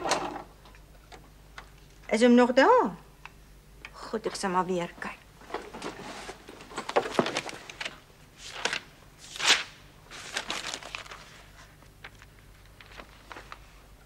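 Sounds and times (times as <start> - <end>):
paper rustling: 5.6 - 13.8.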